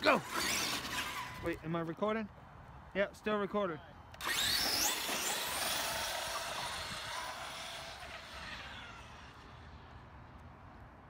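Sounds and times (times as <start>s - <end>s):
toy truck motor whine: 0.0s - 1.5s, 4.2s - 9.8s.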